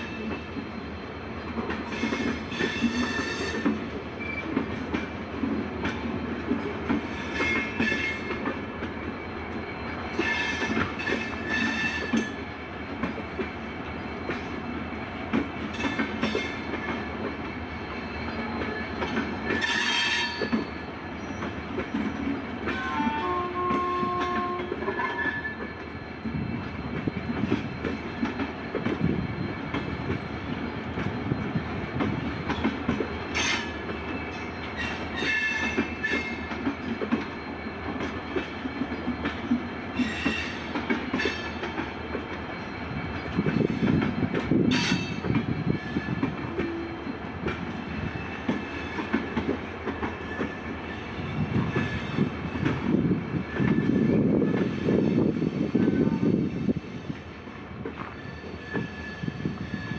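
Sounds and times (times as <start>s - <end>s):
train wheels clattering over rails: 0.0s - 59.9s
high-pitched wheel squeals: 9.8s - 12.4s, 17.9s - 21.5s, 23.0s - 28.0s, 58.0s - 59.9s.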